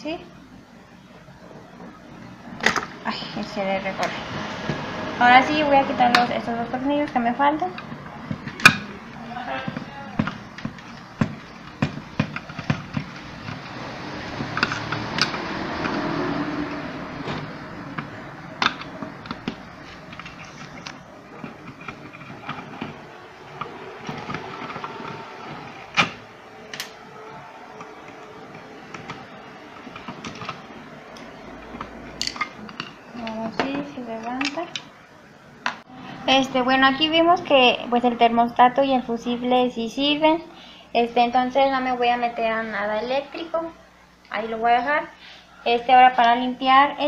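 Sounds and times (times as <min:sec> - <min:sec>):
plastic parts being handled: 0:17.2 - 0:33.8.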